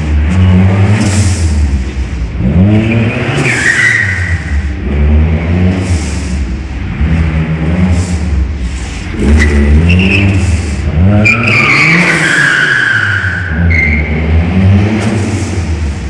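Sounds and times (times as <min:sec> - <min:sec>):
car engine revving: 0:00.0 - 0:16.0
tyres squealing on concrete: 0:03.4 - 0:04.6, 0:09.3 - 0:14.2.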